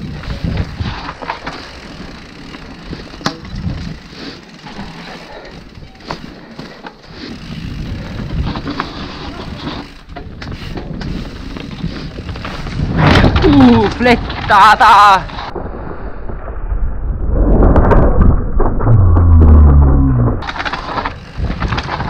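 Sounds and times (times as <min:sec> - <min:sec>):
wind on microphone: 0:00.0 - 0:01.1, 0:07.4 - 0:14.4
bike rattling over bumps: 0:00.0 - 0:15.7, 0:17.8 - 0:22.0
bike tyres on loose dirt: 0:00.0 - 0:18.6, 0:19.4 - 0:22.0.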